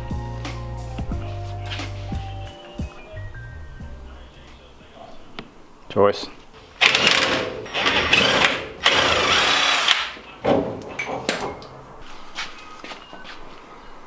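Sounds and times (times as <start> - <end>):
cordless power tool whirring: 6.8 - 10.2.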